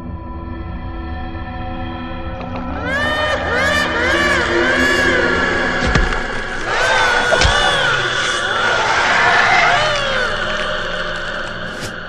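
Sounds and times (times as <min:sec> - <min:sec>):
wailing voice-like cries: 0:02.8 - 0:11.6.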